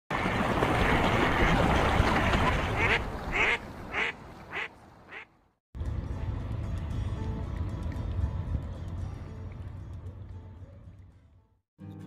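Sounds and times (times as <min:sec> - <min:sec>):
duck quacking: 0:02.7 - 0:05.3.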